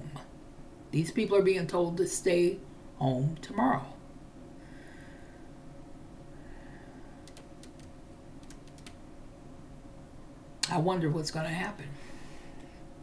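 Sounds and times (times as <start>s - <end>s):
low room hum: 0.0s - 13.0s
keyboard keys clicking: 7.2s - 9.0s.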